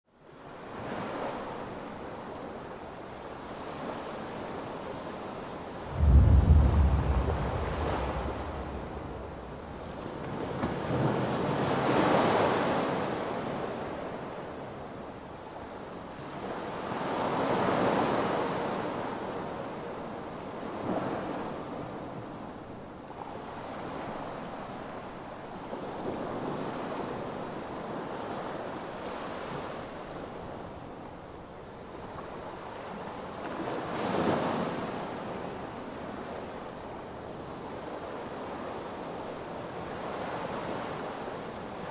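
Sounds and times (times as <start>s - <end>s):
sea waves breaking on shore: 3.5s - 14.6s.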